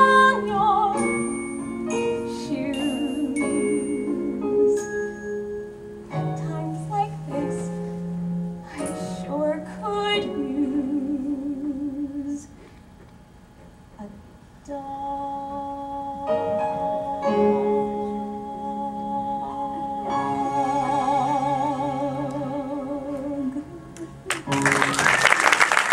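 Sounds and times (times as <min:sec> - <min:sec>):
woman singing with vibrato: 0:00.0 - 0:05.3, 0:06.1 - 0:08.0, 0:08.6 - 0:12.6, 0:14.0 - 0:24.3
instrumental accompaniment: 0:00.0 - 0:11.2.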